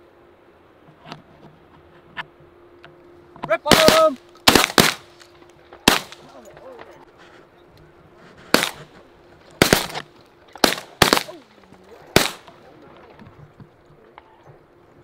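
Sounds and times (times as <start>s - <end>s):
shotgun shots: 3.7s - 5.1s, 5.8s - 6.3s, 8.5s - 8.9s, 9.6s - 10.0s, 10.6s - 11.4s, 12.1s - 12.5s.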